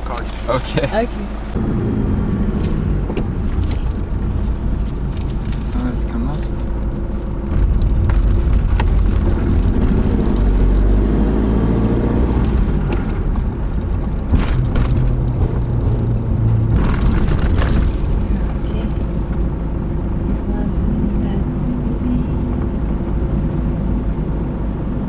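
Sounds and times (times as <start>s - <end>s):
camper van engine at low revs: 0.0s - 25.0s
road rumble on steel ramp: 1.4s - 25.0s
sharp knocks: 14.2s - 18.6s.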